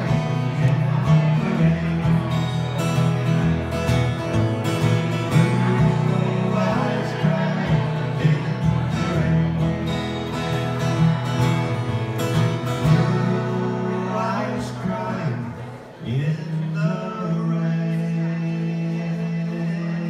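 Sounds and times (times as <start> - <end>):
acoustic guitars playing country ballad: 0.0 - 20.0.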